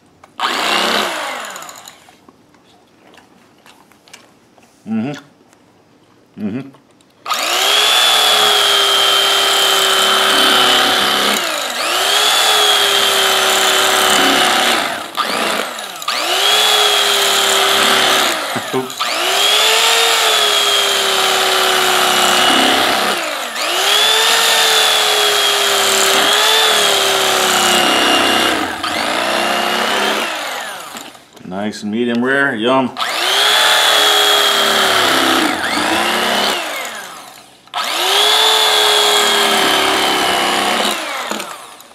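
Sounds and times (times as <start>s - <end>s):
electric carving knife whining: 0.4s - 2.2s, 7.3s - 31.4s, 33.0s - 41.9s.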